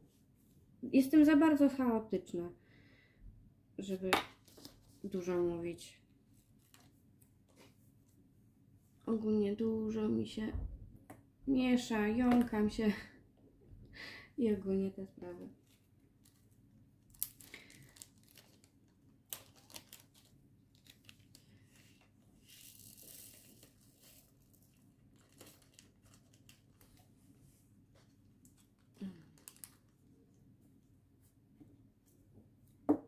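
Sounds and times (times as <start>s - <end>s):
plastic bags crinkling: 16.1s - 27.2s, 28.5s - 30.1s.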